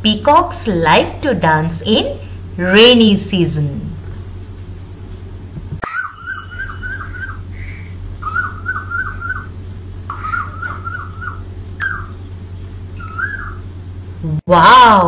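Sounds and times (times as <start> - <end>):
cuckoo singing: 5.8 - 12.2, 12.9 - 13.7.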